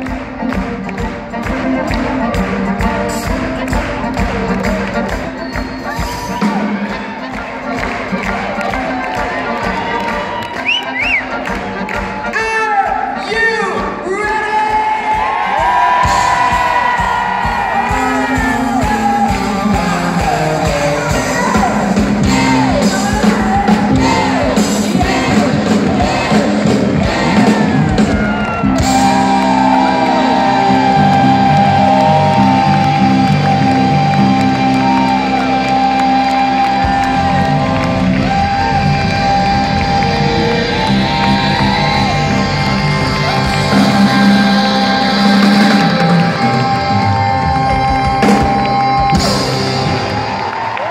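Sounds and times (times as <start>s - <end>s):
live rock band playing: 0.0s - 12.4s, 13.8s - 50.9s
person singing: 17.9s - 28.2s, 28.8s - 49.6s.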